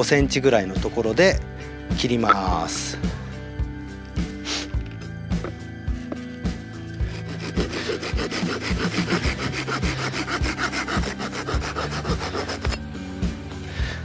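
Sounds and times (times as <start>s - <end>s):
handsaw sawing wood: 7.0s - 12.8s.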